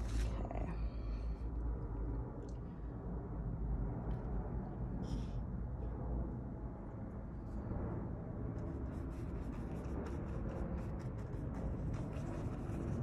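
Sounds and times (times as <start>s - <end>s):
low background rumble: 0.0s - 13.0s
paintbrush scratching on canvas: 8.7s - 13.0s.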